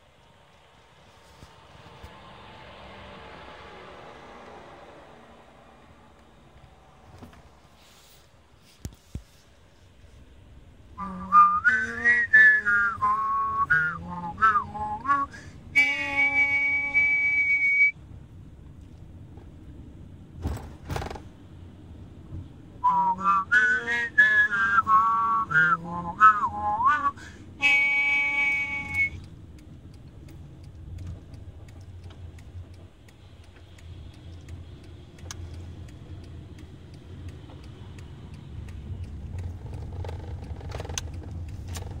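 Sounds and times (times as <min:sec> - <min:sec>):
car road rumble: 0:00.0 - 0:42.0
person whistling a tune: 0:11.0 - 0:18.0, 0:22.8 - 0:29.2.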